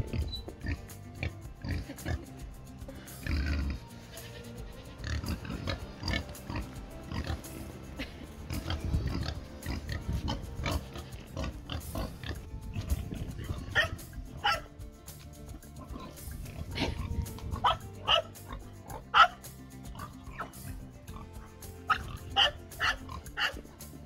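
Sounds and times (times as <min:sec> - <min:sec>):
background music: 0:00.0 - 0:24.0
goat kids bleating: 0:02.9 - 0:07.5.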